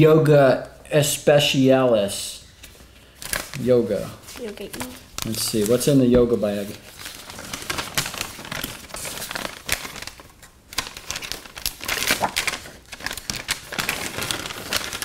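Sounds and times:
paper sheets being handled: 0:02.6 - 0:15.0
paper bag crinkling: 0:03.2 - 0:15.0.

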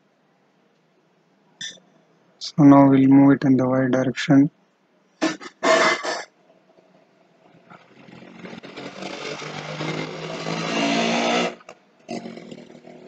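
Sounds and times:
motor running: 0:07.8 - 0:11.7.

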